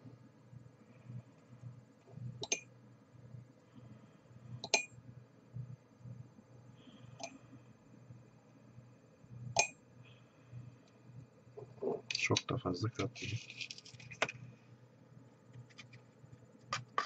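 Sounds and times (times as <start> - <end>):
faint low hum: 0.0 - 17.0.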